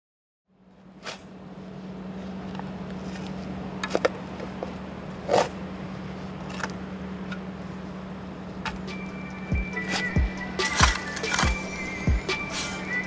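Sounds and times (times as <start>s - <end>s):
steady low hum: 0.5s - 13.0s
shovel scraping soil: 0.9s - 1.4s, 3.0s - 4.1s, 5.2s - 5.6s, 9.7s - 13.0s.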